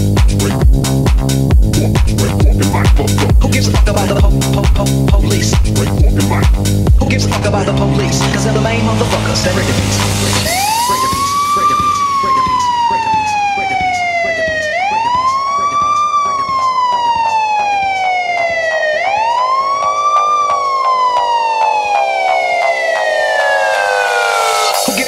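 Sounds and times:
music with sustained notes: 7.8 - 25.0
siren wail: 10.1 - 25.0.

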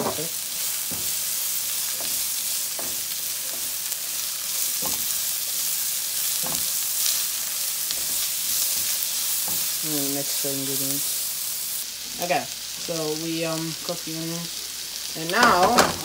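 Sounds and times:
utensil stirring against pan: 0.0 - 13.0
onions sizzling in oil: 0.0 - 16.0.

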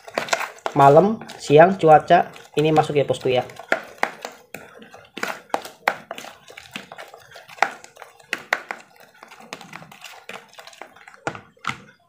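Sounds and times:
spoon stirring thick wet mix: 0.0 - 12.0
spoon tapping plastic bowl: 0.0 - 12.0.

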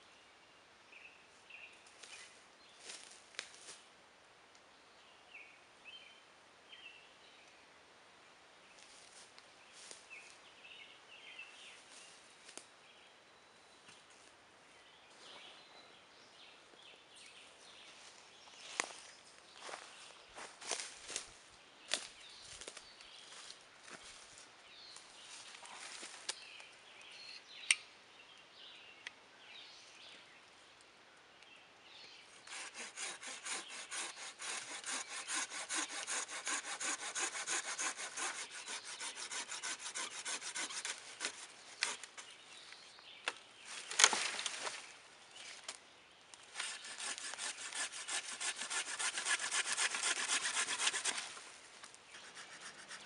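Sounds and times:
hand saw cutting a branch: 32.3 - 42.3, 46.5 - 51.4, 52.1 - 53.0
sharp branch crack: 43.2 - 44.9.

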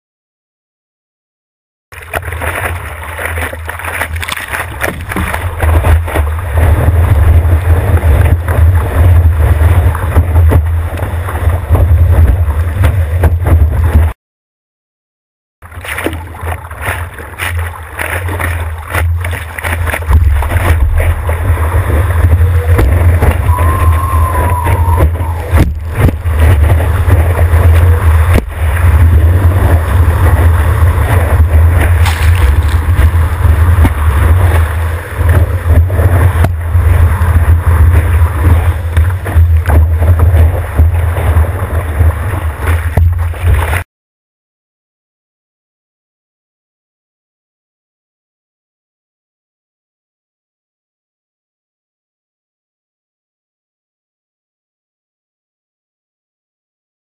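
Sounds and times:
rush of water and wind: 1.9 - 14.2, 15.6 - 43.8
low rumble of buffeting: 2.0 - 14.1, 15.7 - 43.8.

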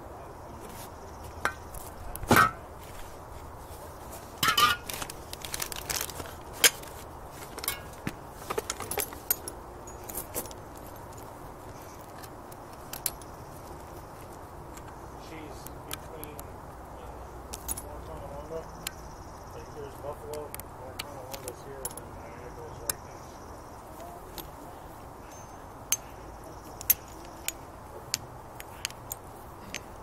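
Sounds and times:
metal tools clinking: 4.4 - 13.4, 21.0 - 23.0, 25.2 - 30.0.

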